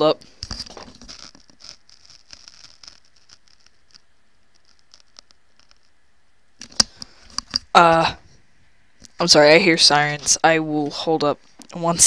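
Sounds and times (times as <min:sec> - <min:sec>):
fingers handling headset microphone: 0:00.2 - 0:06.0, 0:06.6 - 0:07.7.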